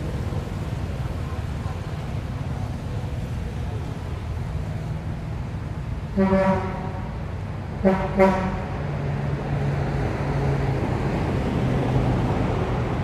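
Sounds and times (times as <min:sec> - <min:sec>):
vehicle horn beeps: 0:06.2 - 0:07.0, 0:07.8 - 0:08.7.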